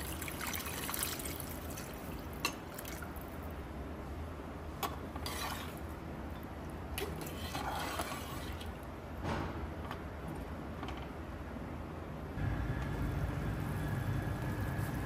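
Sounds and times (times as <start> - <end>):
liquid sloshing in pot: 7.0 - 8.8.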